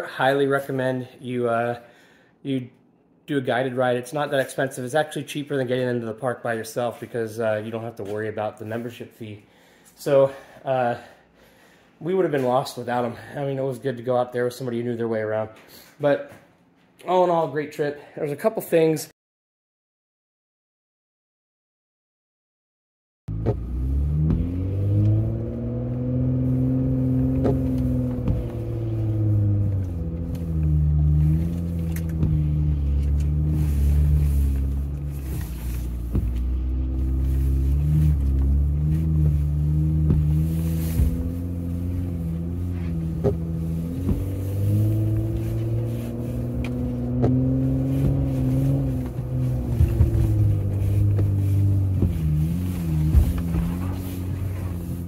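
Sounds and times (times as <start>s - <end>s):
engine pulling at low speed: 23.3s - 55.0s.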